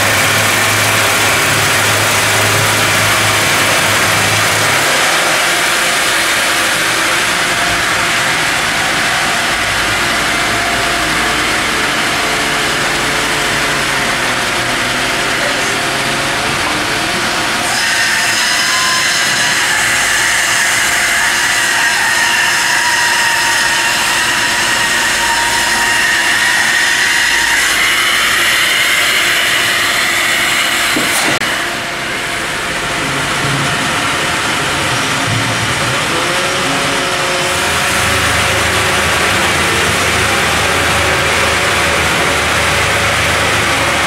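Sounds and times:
sawmill machinery high whine: 0:00.0 - 0:44.0.

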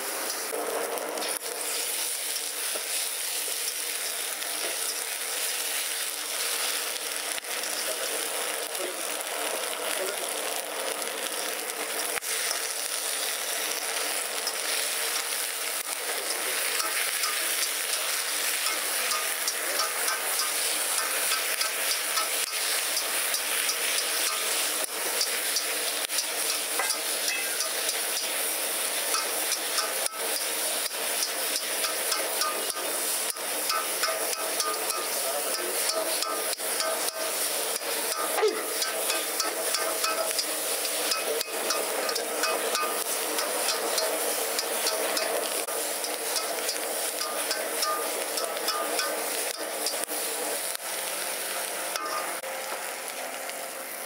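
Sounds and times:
food sizzling in a wok: 0:00.0 - 0:54.0.

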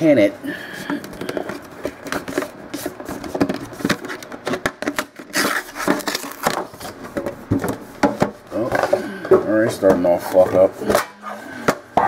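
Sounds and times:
cards rustling: 0:00.8 - 0:07.8.

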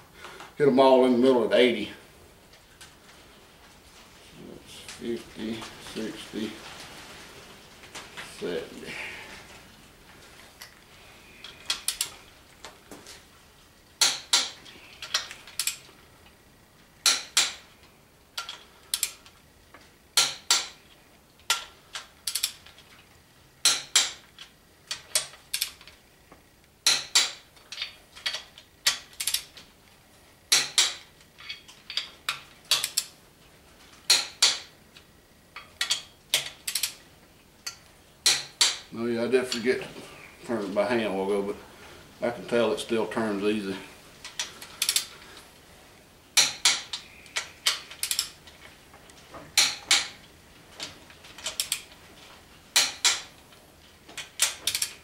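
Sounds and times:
torque wrench ratcheting and clicking: 0:21.5 - 0:22.6, 0:44.8 - 0:45.1, 0:47.7 - 0:48.3.

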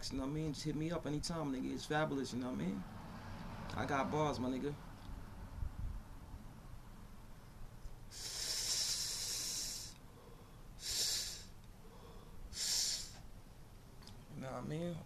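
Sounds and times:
man exhaling smoke: 0:08.1 - 0:13.3.

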